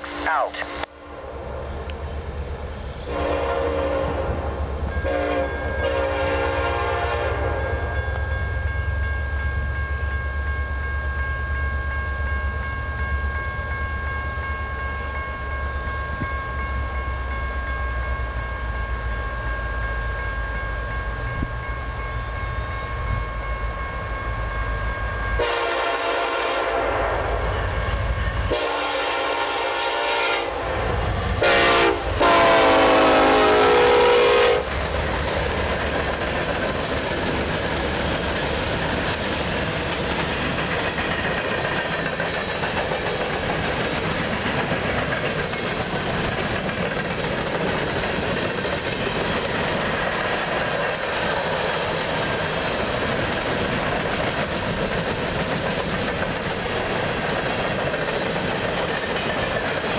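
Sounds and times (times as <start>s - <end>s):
locomotive rumble: 0.0s - 59.9s
train air horn blasts: 3.0s - 7.9s, 25.4s - 27.4s, 28.5s - 34.7s.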